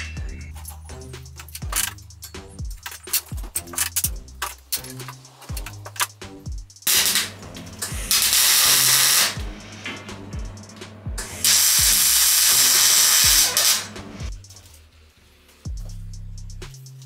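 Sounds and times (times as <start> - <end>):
background music with beat: 0.0 - 17.0
welding arc crackling: 1.5 - 14.5.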